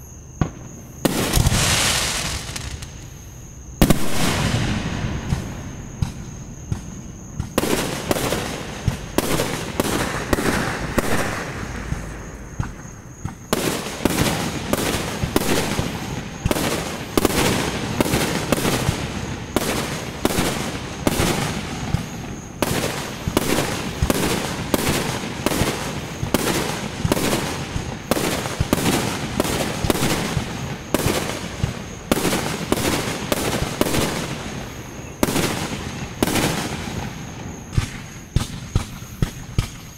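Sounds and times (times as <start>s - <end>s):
firework shells bursting: 0.4s - 3.2s, 3.8s - 20.4s.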